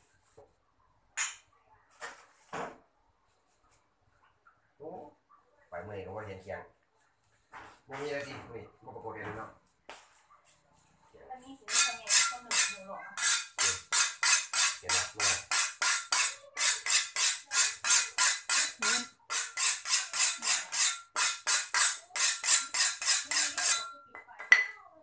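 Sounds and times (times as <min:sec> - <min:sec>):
blade scraping on blade: 0:11.7 - 0:24.0.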